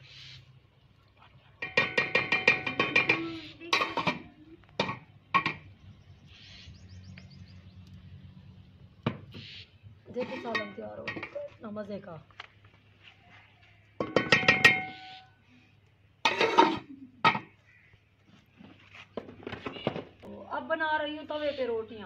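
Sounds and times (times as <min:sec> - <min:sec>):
metal pot lid clattering: 0:01.6 - 0:05.6, 0:10.2 - 0:11.5, 0:14.0 - 0:15.0, 0:16.2 - 0:17.6.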